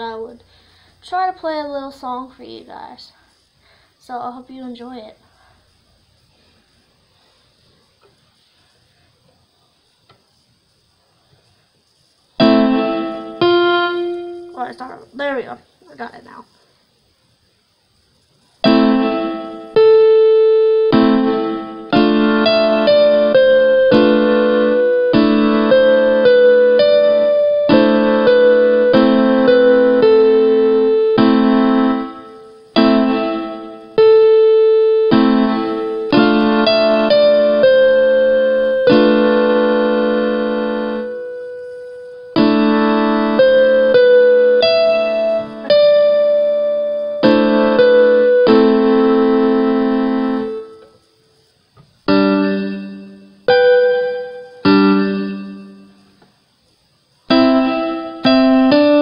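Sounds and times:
slow piano mazurka: 12.3 - 15.3, 18.5 - 51.1, 52.0 - 56.2, 57.3 - 59.0.

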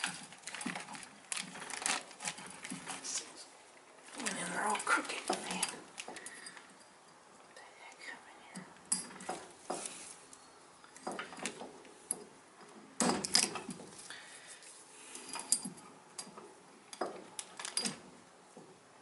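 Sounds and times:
metal parts clicking and clinking: 11.0 - 14.0, 15.2 - 18.1.

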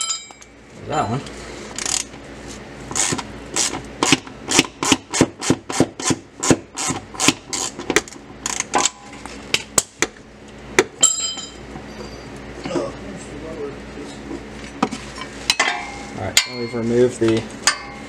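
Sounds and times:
metallic ring of loose metal: 0.0 - 0.5, 11.0 - 11.6, 15.5 - 17.0, 17.6 - 18.0
ratchet wrench strokes: 1.8 - 2.1, 3.0 - 4.2.

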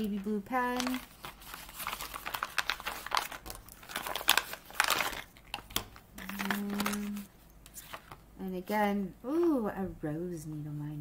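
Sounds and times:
packaging crinkling: 0.0 - 8.3.

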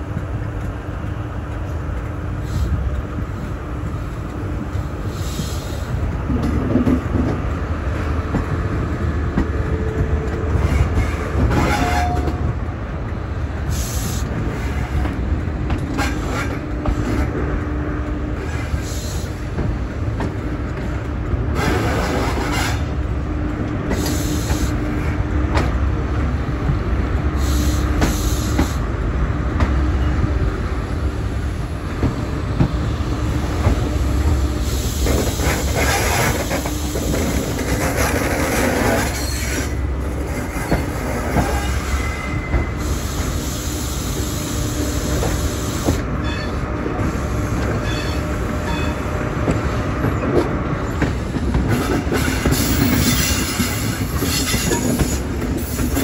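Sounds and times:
train engine rumble: 0.0 - 56.0
train wheels squealing: 38.6 - 39.8, 40.4 - 46.6, 47.8 - 49.1, 51.8 - 56.0.

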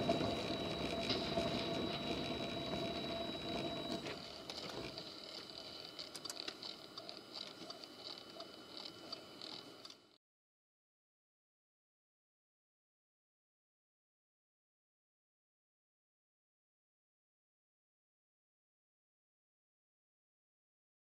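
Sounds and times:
car road and engine noise: 0.0 - 4.9
faint high whine: 0.0 - 10.2.

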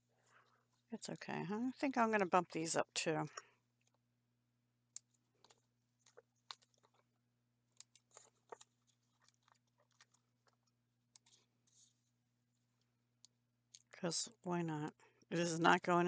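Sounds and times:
paper crinkling: 7.8 - 12.1.

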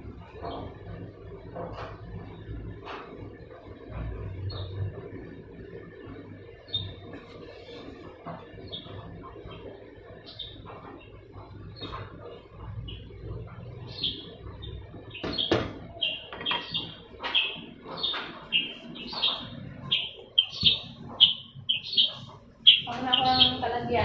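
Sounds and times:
small bird chirping: 6.6 - 7.7, 8.5 - 24.0
sharp knocks: 15.2 - 18.5.

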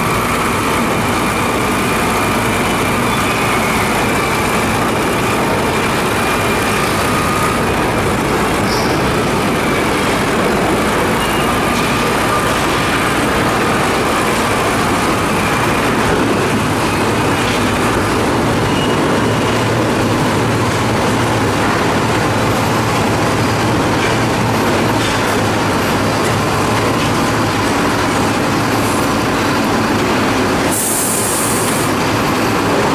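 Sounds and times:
truck diesel engine running: 0.0 - 32.9
air hiss: 30.7 - 31.9.

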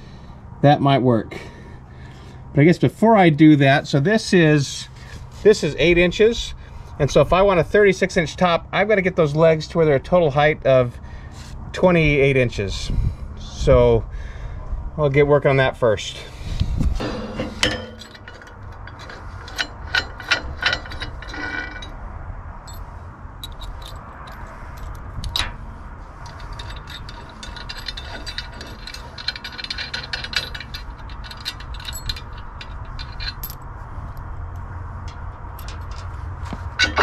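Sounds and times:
metal knock: 17.0 - 19.1
metal clicks and clinks: 17.0 - 22.0, 23.4 - 25.6, 26.2 - 37.0.

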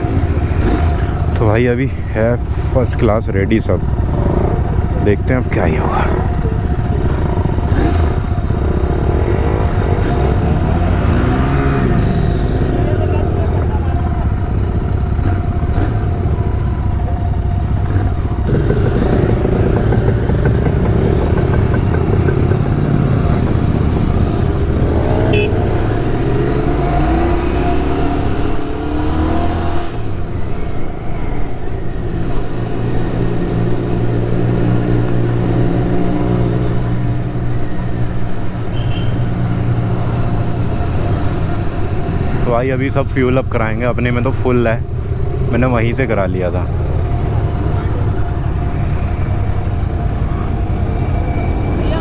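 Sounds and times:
other motorcycles riding: 0.0 - 52.0
road and wind noise: 0.0 - 52.0
motorcycle engine accelerating: 3.7 - 5.3, 5.9 - 38.4.

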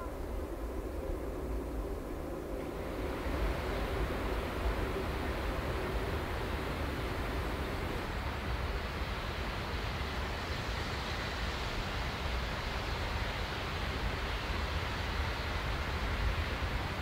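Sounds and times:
outdoor hiss: 0.0 - 17.0
wind buffeting the microphone: 0.0 - 17.0.

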